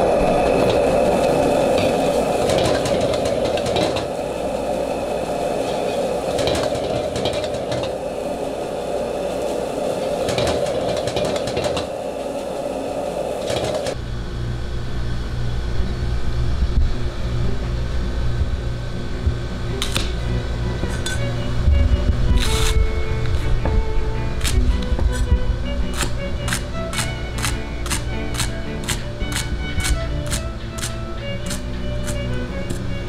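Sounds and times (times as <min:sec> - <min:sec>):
gas wok burner roaring: 0:00.0 - 0:33.0
low steady hum: 0:00.0 - 0:33.0
metal spatula scraping wok: 0:20.8 - 0:21.4.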